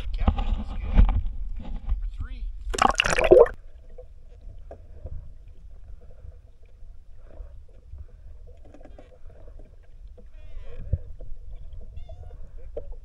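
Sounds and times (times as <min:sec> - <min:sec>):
camera splashing into water: 0:02.8 - 0:03.6
muffled underwater rumble: 0:04.0 - 0:13.0.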